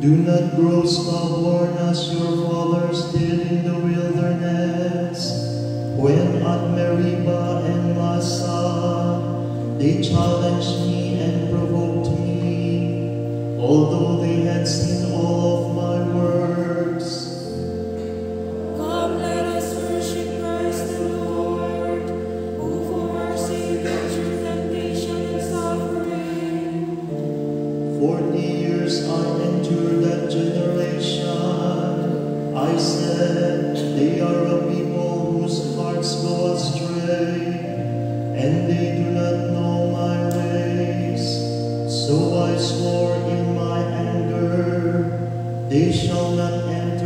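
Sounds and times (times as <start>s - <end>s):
held keyboard chords: 0.0s - 47.0s
voices singing a slow chant: 18.6s - 37.7s.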